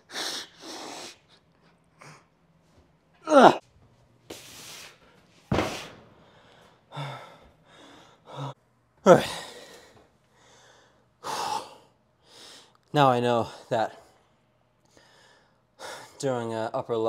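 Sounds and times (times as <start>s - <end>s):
person groaning: 3.2s - 3.6s
thud: 5.5s - 6.3s
person breathing heavily and gasping: 5.7s - 12.7s.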